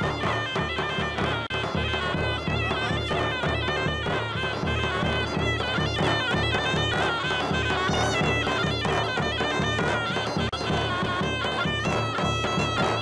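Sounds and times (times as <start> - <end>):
shrill reed pipe dance tune: 0.0 - 13.0.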